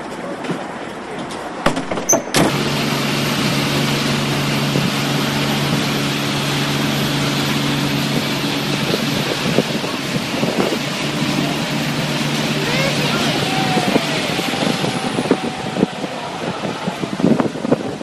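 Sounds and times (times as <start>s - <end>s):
vehicle doors banging shut: 1.6s - 2.6s
boat engine running: 2.3s - 18.0s
propeller wash churning water: 2.4s - 18.0s.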